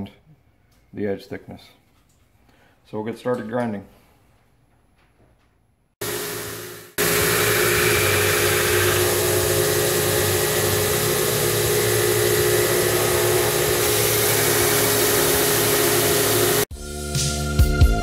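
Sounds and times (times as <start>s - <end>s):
belt grinder grinding hiss: 6.0s - 16.7s
motor hum: 6.0s - 16.7s.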